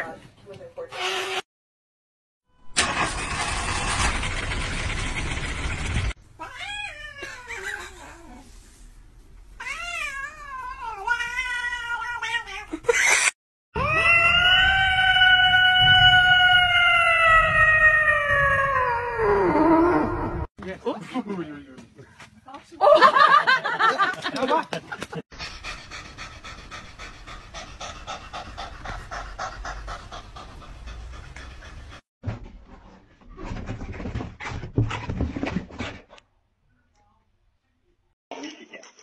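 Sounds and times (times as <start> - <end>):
loud rough noise: 2.8 - 6.2
cat yowling: 13.8 - 20.2.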